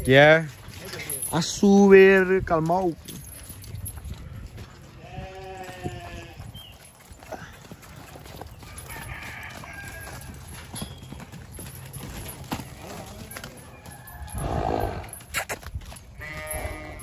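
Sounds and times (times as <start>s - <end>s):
farm animal calling: 4.7s - 11.5s, 12.5s - 17.0s.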